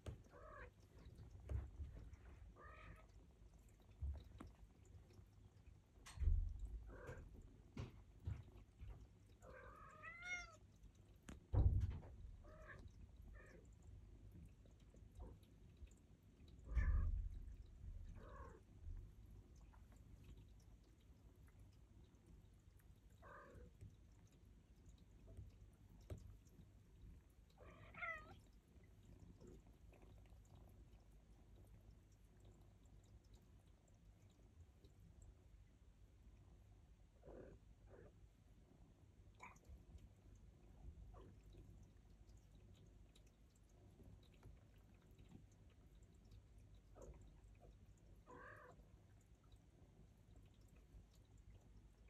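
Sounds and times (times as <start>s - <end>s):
faint room hum: 0.0s - 52.0s
cat meowing: 9.5s - 10.6s, 27.6s - 28.4s.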